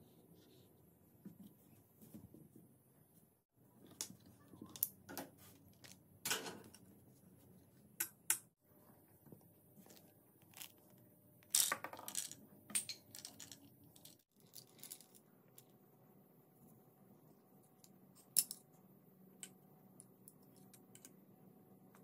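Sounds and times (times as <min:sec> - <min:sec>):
steel balls clinking and rolling: 0:11.4 - 0:15.2.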